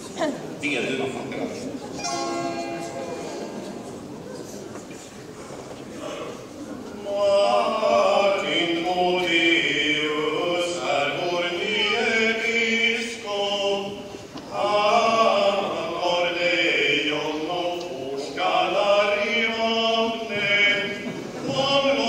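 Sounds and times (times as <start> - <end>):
men singing a hymn: 7.0 - 22.0.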